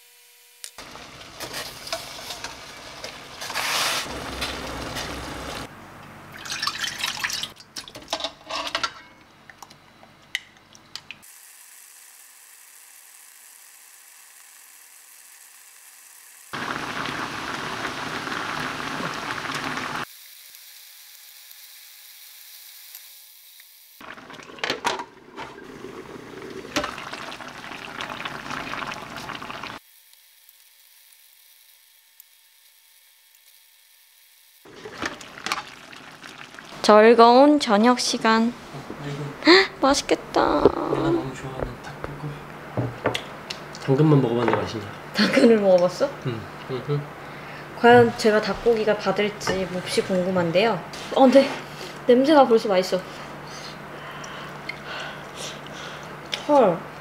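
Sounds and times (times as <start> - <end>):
sauce bubbling in a pan: 16.6 - 20.1, 24.0 - 29.8, 34.7 - 36.9.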